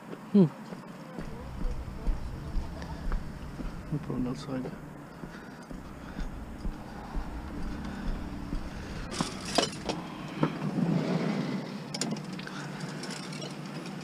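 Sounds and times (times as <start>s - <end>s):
car driving past: 1.2s - 10.8s.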